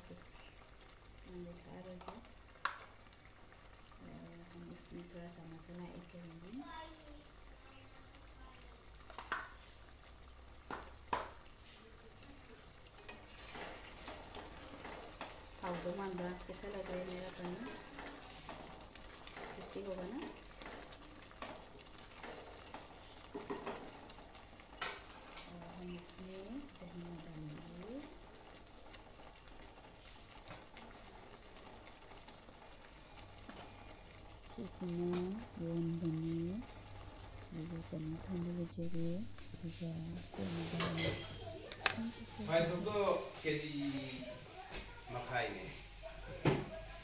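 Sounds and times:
curry bubbling in a pot: 0.0 - 47.0
wooden spatula stirring gravy: 10.6 - 26.8.

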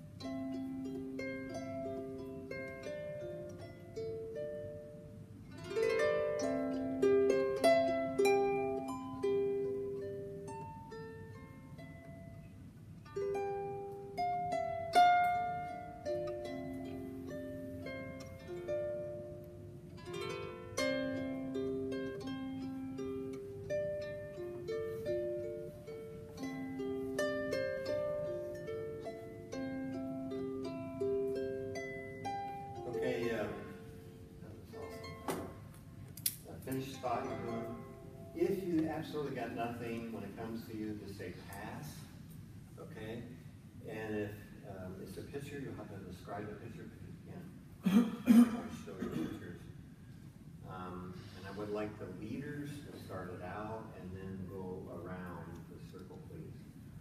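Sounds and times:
harp being plucked: 0.0 - 41.7.

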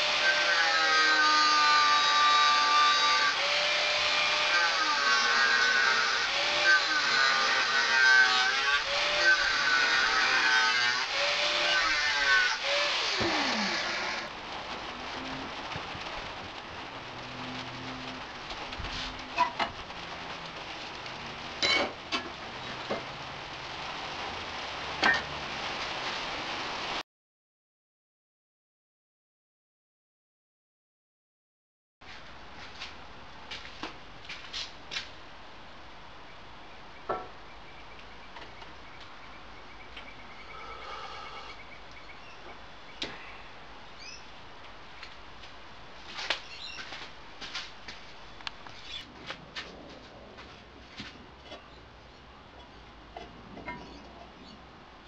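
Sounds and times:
steady rain falling: 12.6 - 27.0, 32.1 - 55.0.

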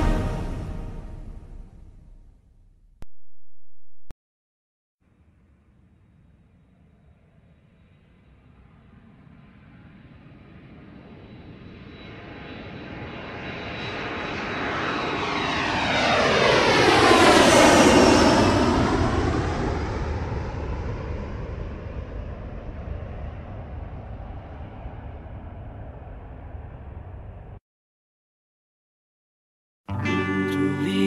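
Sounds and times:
aircraft flying past: 5.6 - 27.6.

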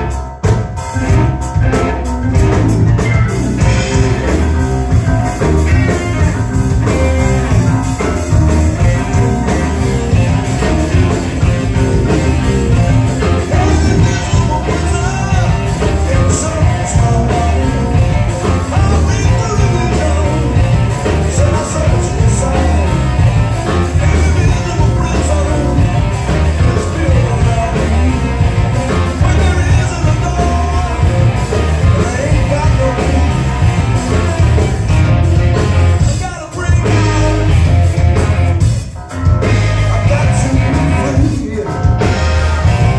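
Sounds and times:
rock band playing: 0.0 - 42.9
male singer: 13.2 - 33.5, 35.6 - 37.7, 39.4 - 42.9.

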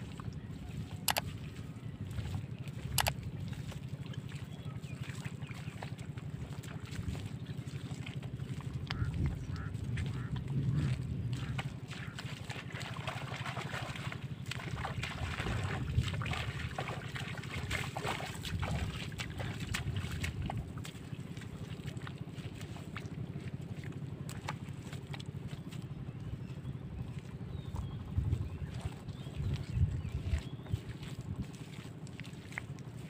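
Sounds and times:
wind rumbling on microphone: 0.0 - 3.8, 5.7 - 21.2, 25.5 - 33.0
bare feet squelching in mud: 0.0 - 33.0.

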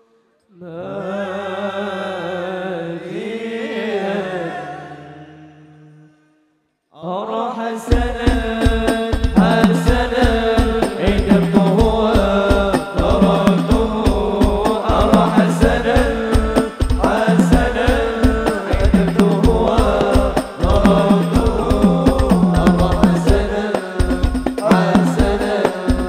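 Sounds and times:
men singing devotional song: 0.5 - 6.2, 7.0 - 26.0
hand frame drums: 7.9 - 26.0
bass drum beat: 8.0 - 26.0.

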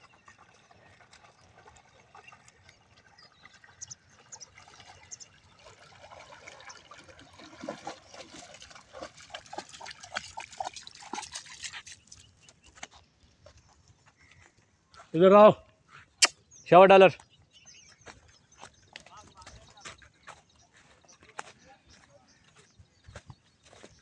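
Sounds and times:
dog splashing in water: 0.3 - 12.8.

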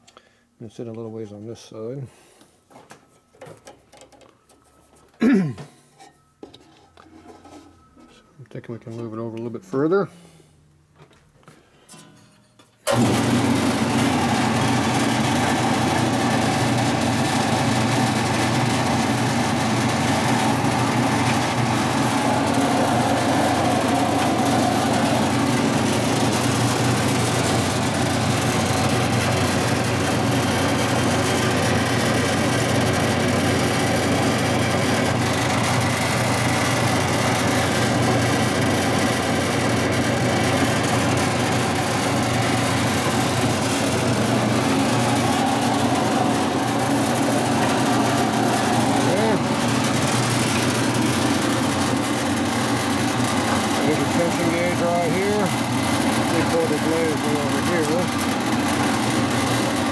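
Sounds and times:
bandsaw running: 12.9 - 59.9.

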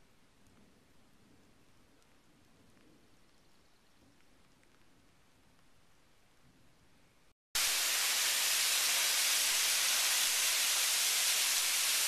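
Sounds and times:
waterfall hissing onto rocks: 7.6 - 12.0.

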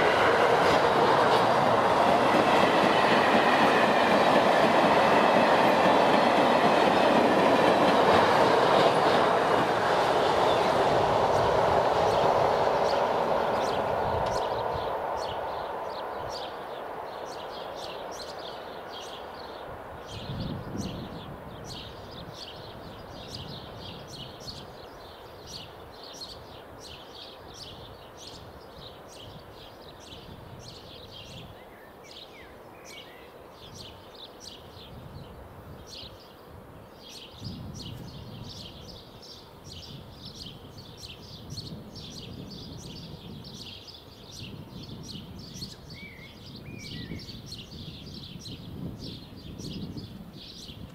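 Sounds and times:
passing train: 0.0 - 50.9
bird chirping: 9.9 - 36.4, 37.0 - 50.9.

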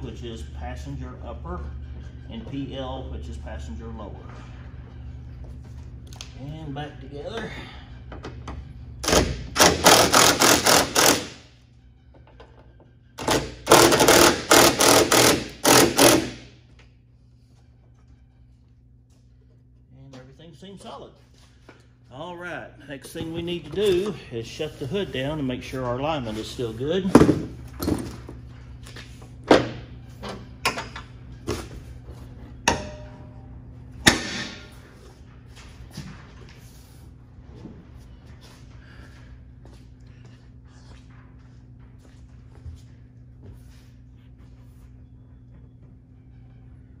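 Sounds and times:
low steady hum: 0.0 - 47.0
power tool rattling: 9.0 - 11.4, 13.2 - 16.4.

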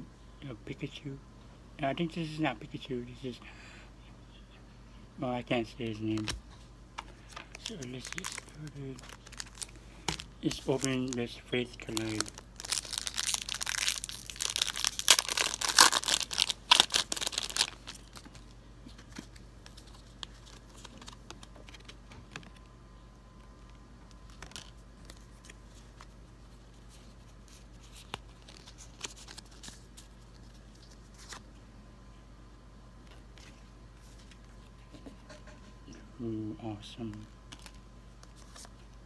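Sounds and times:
foil wrapper tearing and crinkling: 7.5 - 18.5.

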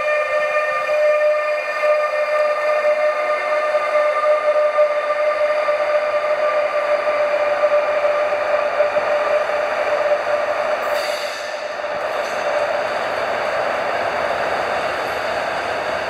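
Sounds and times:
wheels on rails: 7.2 - 16.0
brief hiss: 10.9 - 11.6.

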